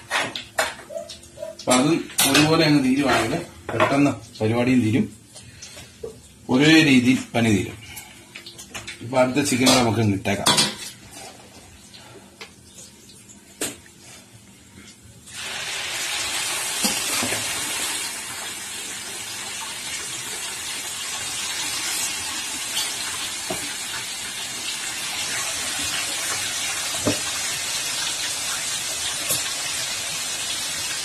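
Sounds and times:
chicken sizzling in hot oil: 15.3 - 31.0.

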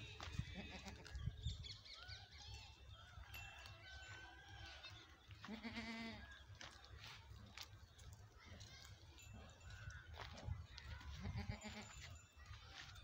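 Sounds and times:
goat bleating: 0.4 - 1.2, 5.4 - 6.2, 11.2 - 12.0.

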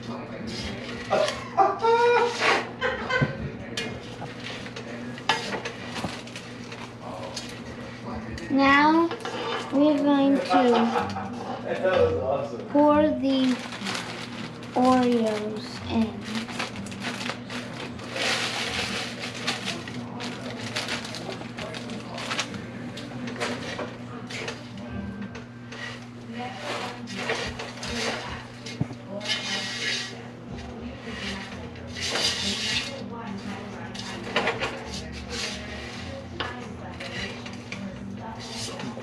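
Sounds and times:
plastic bag crinkling: 13.2 - 22.6
spoon stirring sticky mix: 25.7 - 39.0
spoon scraping and knocking pan: 25.8 - 33.0.

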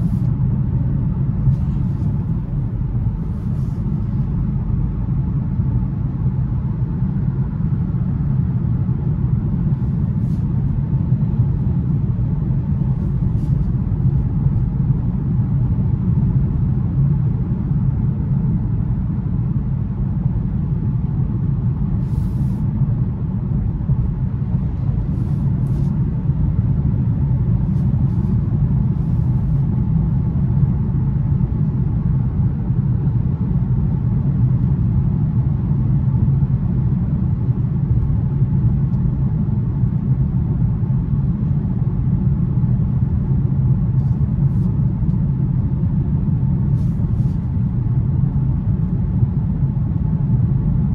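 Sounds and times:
road noise: 0.0 - 17.8, 20.6 - 32.2
car cabin rumble at highway speed: 0.0 - 50.9.

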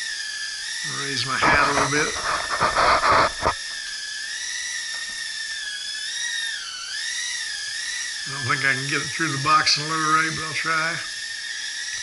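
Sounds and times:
quadcopter propellers whining: 0.0 - 12.0
microphone handling rustle: 1.4 - 3.6.

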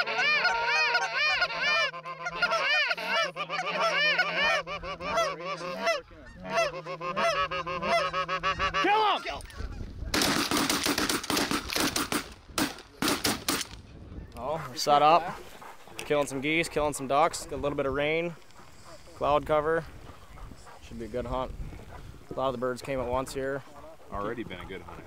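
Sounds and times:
geese honking: 0.0 - 9.9, 21.9 - 25.0
shotgun fire: 10.2 - 13.8.

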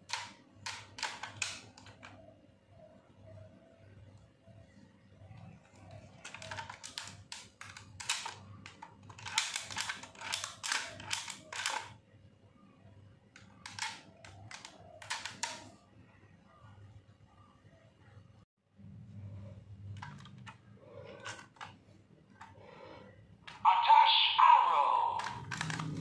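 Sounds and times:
plastic toy clicking and knocking: 0.0 - 2.2, 5.3 - 12.0, 13.3 - 15.8, 19.9 - 21.8, 23.4 - 23.6, 25.2 - 26.0.

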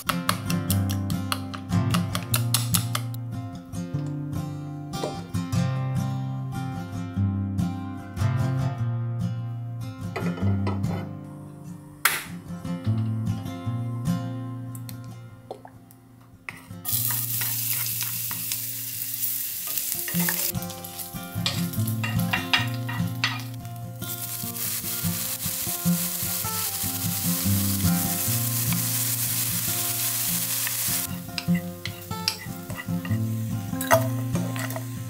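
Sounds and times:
food sizzling in hot oil: 16.9 - 35.0
spatula scraping a pan: 30.6 - 33.4.

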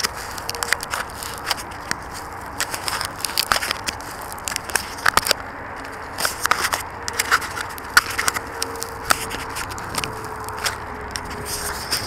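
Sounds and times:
hands handling camera: 0.0 - 12.0.

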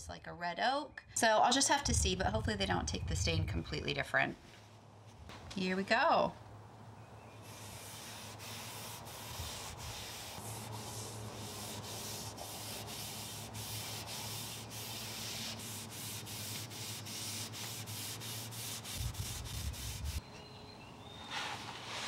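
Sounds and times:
cloth rag rubbing wood: 7.4 - 20.2.

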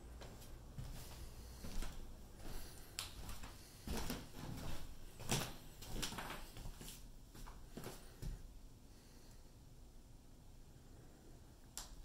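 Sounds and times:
footsteps on bare floor: 0.0 - 8.4.

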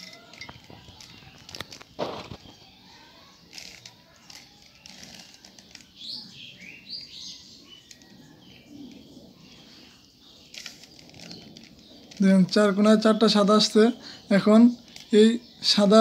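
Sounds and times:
puzzle cube clicking and rattling: 3.5 - 6.0, 10.4 - 12.6.

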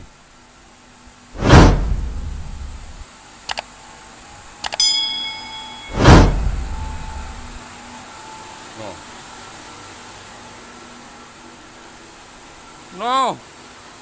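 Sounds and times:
whoosh sound effect: 1.4 - 3.0, 5.9 - 7.6
bell-like ding: 4.7 - 7.4.

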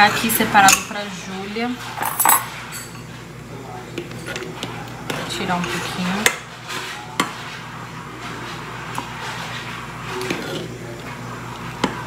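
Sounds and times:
saucepan and utensils clattering: 1.7 - 3.3.

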